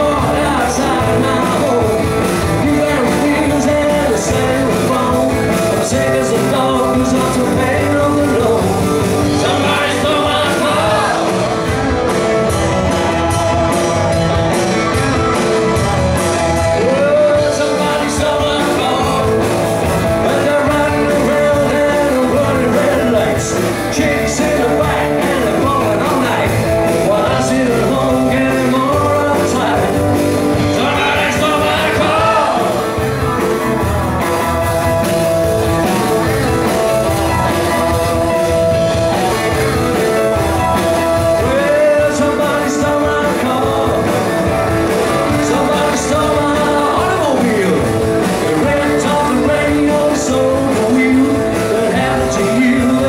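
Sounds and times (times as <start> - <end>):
man singing lead vocal: 0.0 - 11.7, 16.7 - 33.1, 41.0 - 53.0
bass guitar: 0.0 - 53.0
drums: 0.0 - 53.0
electric guitar: 0.0 - 53.0
electric keyboard: 0.0 - 53.0.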